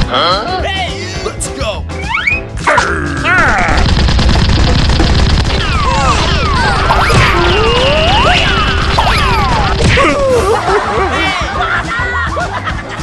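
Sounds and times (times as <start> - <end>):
cartoon whistles swooping: 2.0 - 2.5
background music with beat: 10.2 - 13.0.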